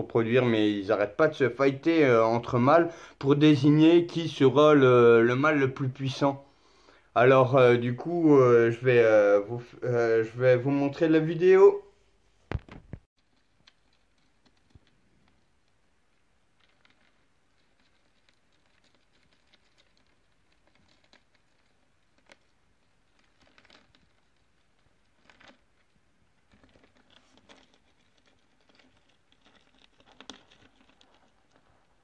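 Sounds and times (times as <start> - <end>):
cockroaches scratching on plastic: 12.6 - 32.0.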